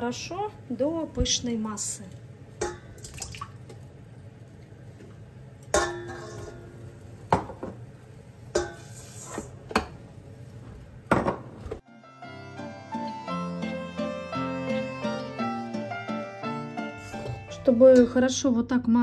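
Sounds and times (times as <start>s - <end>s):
utensils clinking against bowl: 5.6s - 6.8s.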